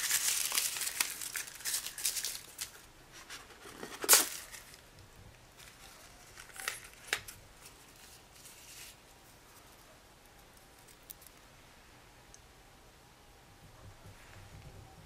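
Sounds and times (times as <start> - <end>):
rustling: 0.0 - 11.5.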